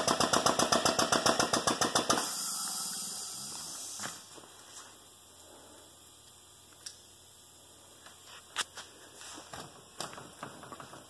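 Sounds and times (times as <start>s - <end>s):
low steady hum: 2.3s - 11.0s.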